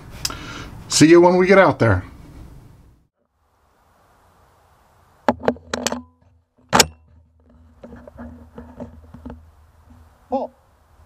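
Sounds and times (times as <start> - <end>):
metal clack: 5.3 - 9.4.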